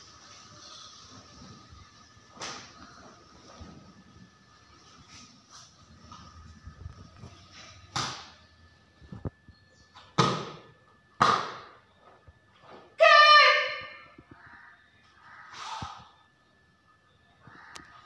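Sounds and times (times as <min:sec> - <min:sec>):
high-pitched kiai shout: 0:13.0 - 0:14.0.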